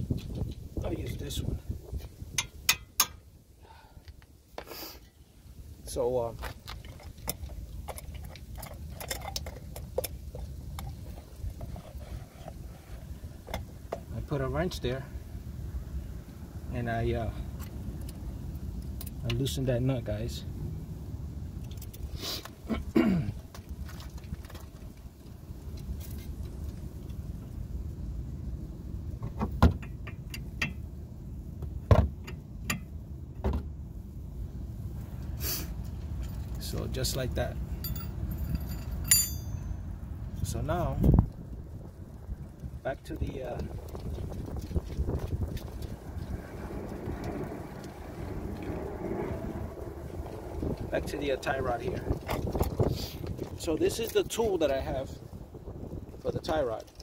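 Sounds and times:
low steady rumble: 0:00.0 - 0:57.0
wrench clinking against nut: 0:37.8 - 0:39.8.

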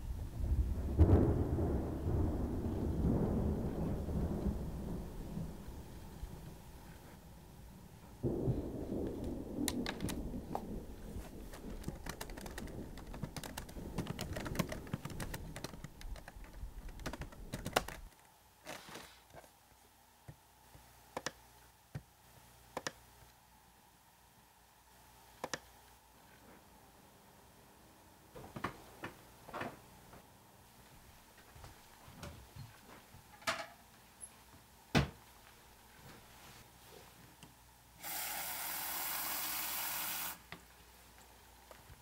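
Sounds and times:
low rumbling noise: 0:00.0 - 0:18.1
laptop keyboard typing: 0:11.5 - 0:18.2.

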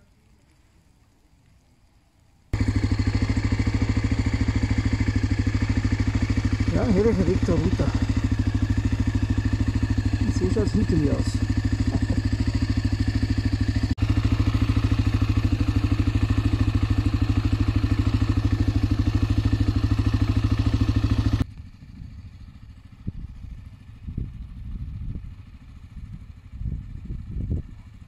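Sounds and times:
faint low rumbles: 0:00.0 - 0:14.0
motorcycle engine idling: 0:02.5 - 0:28.0.

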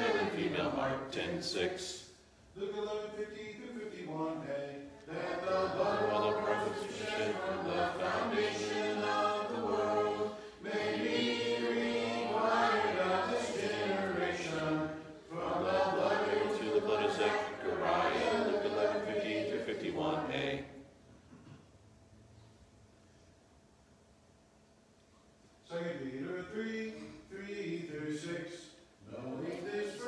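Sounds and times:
children reciting in unison: 0:00.0 - 0:00.9, 0:05.1 - 0:20.4.

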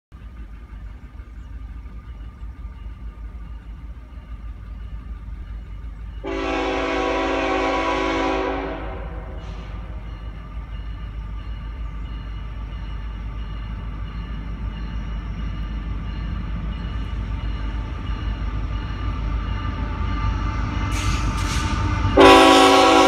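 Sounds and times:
locomotive air horn blast: 0:06.2 - 0:09.9, 0:22.2 - 0:23.0.

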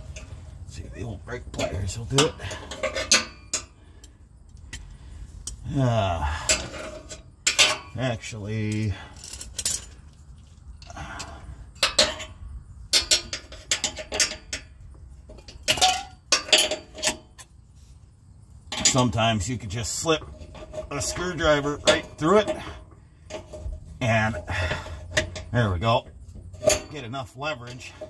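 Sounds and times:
metal tools clinking on concrete: 0:01.0 - 0:04.8, 0:05.4 - 0:17.5, 0:18.7 - 0:28.0
strained groan: 0:05.0 - 0:07.2, 0:20.8 - 0:25.9.

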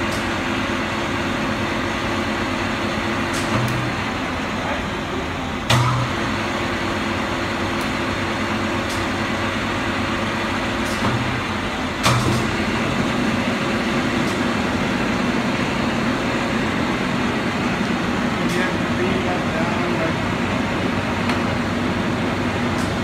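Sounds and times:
lathe mechanical hum: 0:00.0 - 0:23.0
machine clunk: 0:05.7 - 0:06.1, 0:12.0 - 0:12.6.

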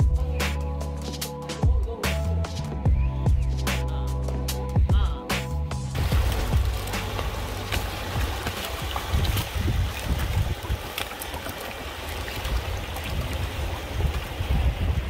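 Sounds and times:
small waves over rocks and shingle: 0:06.0 - 0:15.0
wind rumbling on microphone: 0:06.0 - 0:15.0.

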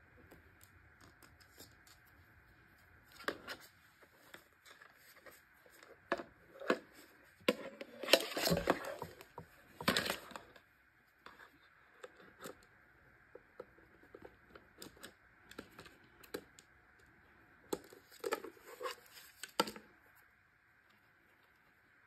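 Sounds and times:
plastic parts clicking and knocking: 0:06.0 - 0:10.6, 0:13.3 - 0:19.9.

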